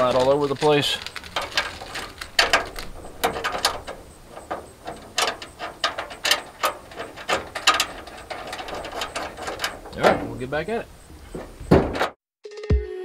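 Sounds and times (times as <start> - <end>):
sharp metal clicks: 0.0 - 10.2
small metal scrapes: 0.0 - 11.6.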